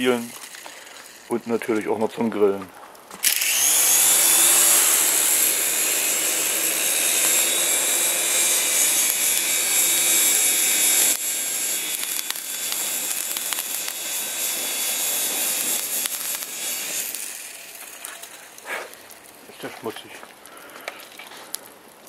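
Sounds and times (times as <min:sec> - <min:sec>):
small electric motor whirring: 0:03.2 - 0:19.3.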